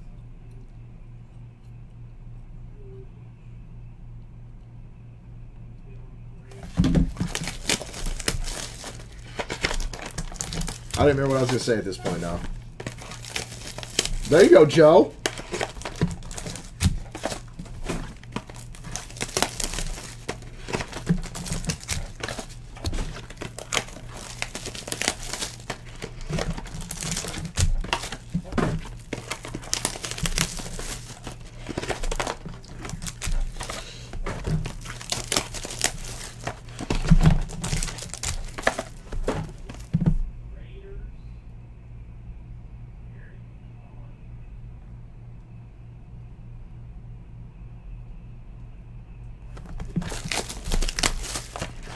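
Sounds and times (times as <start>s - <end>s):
foil wrappers crinkling: 6.5s - 40.2s, 49.5s - 51.9s.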